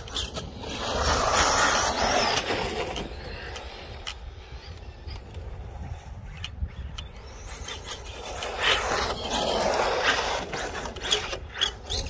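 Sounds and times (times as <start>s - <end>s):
tyres skidding on dirt: 0.0s - 4.1s, 7.3s - 12.0s.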